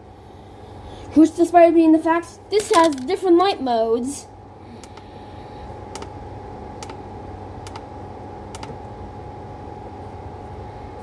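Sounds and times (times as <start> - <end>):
steady low hum: 0.0 - 11.0
speaker button clicking: 7.6 - 7.9, 8.5 - 8.8.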